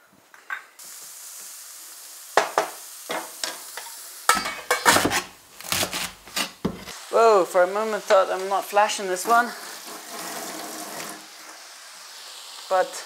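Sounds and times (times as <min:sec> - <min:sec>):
vegetables sizzling in oil: 0:00.8 - 0:13.0
utensil tapping pan: 0:02.4 - 0:05.3
metal pan lid clattering: 0:04.3 - 0:05.1.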